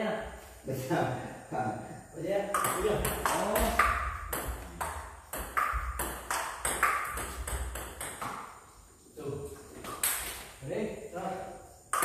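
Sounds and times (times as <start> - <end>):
ball pinging on table: 2.5 - 8.5
ball hitting paddles: 2.6 - 8.6.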